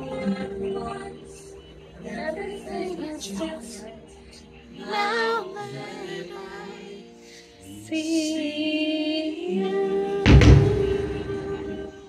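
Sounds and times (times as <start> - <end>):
woman singing with music: 0.0 - 12.0
loud deep thump: 10.3 - 11.5.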